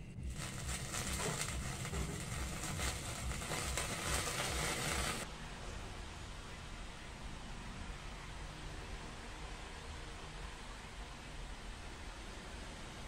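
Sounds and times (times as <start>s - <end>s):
soup simmering with crackling hiss: 0.2s - 5.3s.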